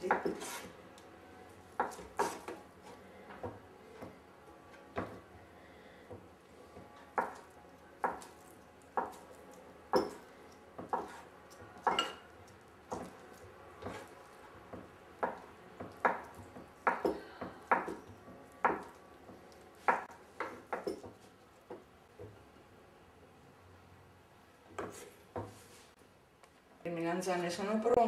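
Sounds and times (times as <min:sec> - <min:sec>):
knife chopping on wooden board: 0:01.8 - 0:02.6, 0:07.2 - 0:08.4, 0:09.0 - 0:09.2, 0:10.8 - 0:12.2, 0:13.8 - 0:14.1, 0:14.7 - 0:19.0, 0:19.8 - 0:21.2.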